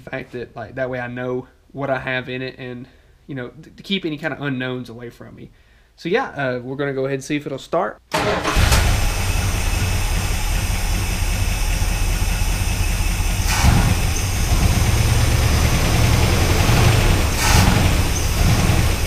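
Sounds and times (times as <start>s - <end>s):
pickup engine idling: 8.4s - 19.0s.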